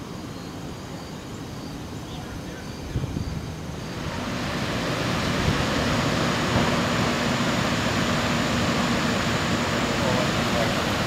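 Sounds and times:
water rushing over spillway: 3.6 - 11.0.

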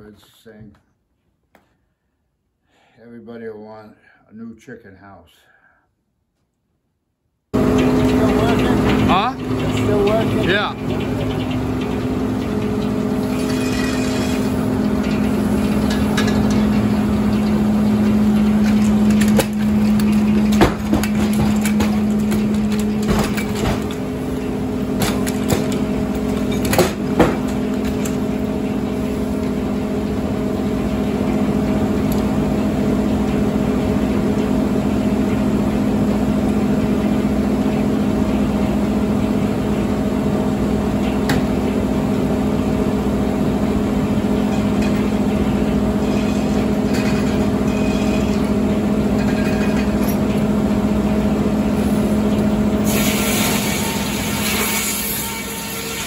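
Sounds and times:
sawmill machinery running: 7.6 - 56.0
sharp knocks: 20.5 - 24.0, 26.6 - 27.6
loud hissing noise: 52.8 - 56.0.

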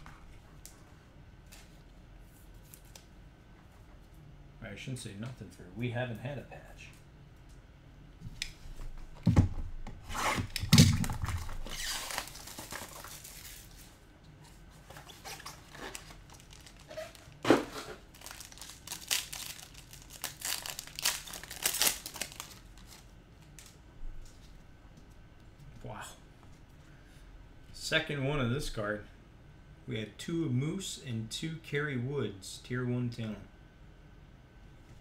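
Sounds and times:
wrappers tearing and crinkling: 10.4 - 13.9, 15.0 - 23.8.

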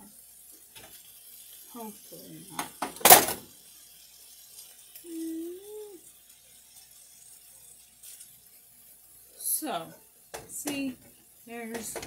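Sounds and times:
faint steady hiss: 0.0 - 12.0
person humming: 5.0 - 6.0
metal tongs clattering on stovetop: 9.6 - 12.0.

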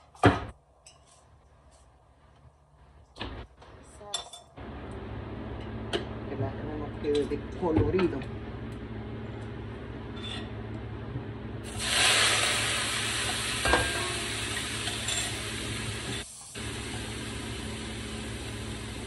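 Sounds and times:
vegetables sizzling in oil: 11.7 - 19.0.

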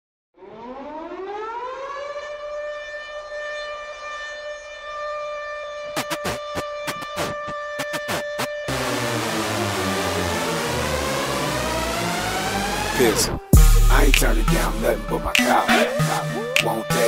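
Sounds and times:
air raid siren wailing: 0.4 - 17.0
electronic rap beat: 6.0 - 9.9, 10.6 - 17.0.

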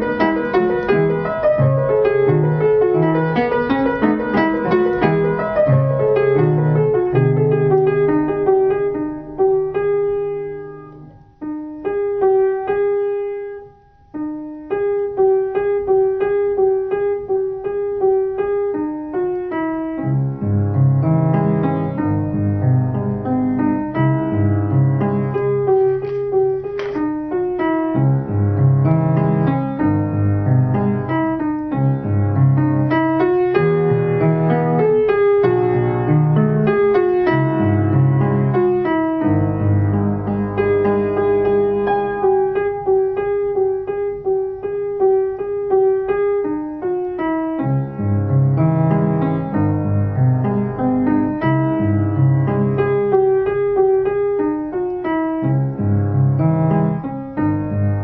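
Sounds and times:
piano music: 0.0 - 58.0.

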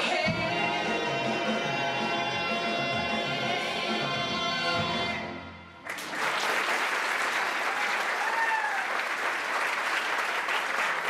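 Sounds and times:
audience applause: 5.9 - 11.0.

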